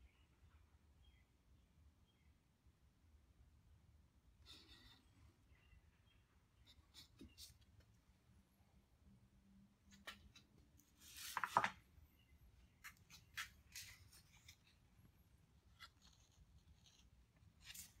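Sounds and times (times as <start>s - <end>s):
scratchy rustles: 15.6s - 18.0s.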